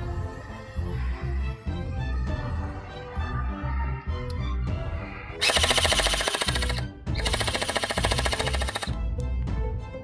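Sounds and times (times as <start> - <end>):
background music: 0.0 - 10.0
gel blaster firing bursts: 5.4 - 9.0.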